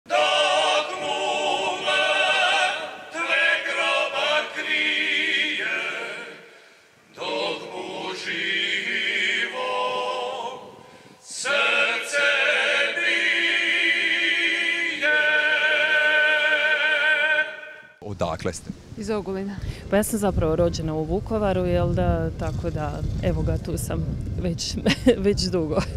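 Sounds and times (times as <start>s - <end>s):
male group singing a cappella: 0.1s - 17.9s.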